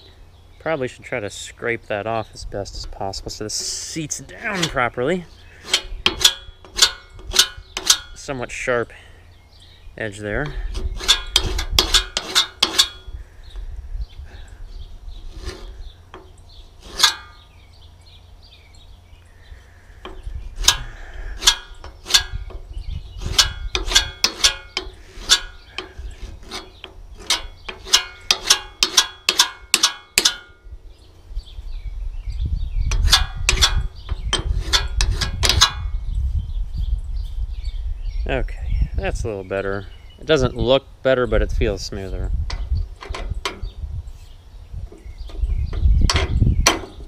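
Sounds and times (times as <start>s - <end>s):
metal on metal scraping: 2.8s - 9.0s, 10.0s - 13.2s, 15.1s - 17.6s, 19.5s - 30.6s, 32.8s - 36.1s.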